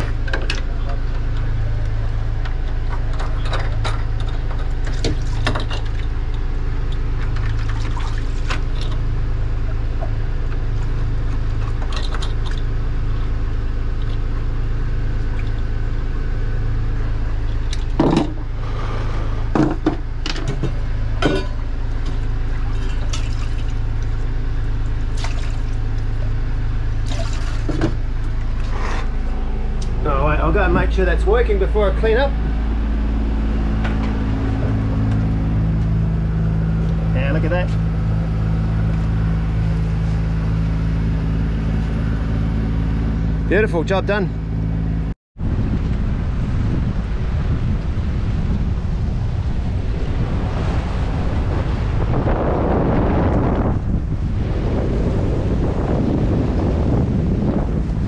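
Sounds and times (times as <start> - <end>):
water sloshing: 0.0 - 42.1
boat engine running: 0.0 - 58.0.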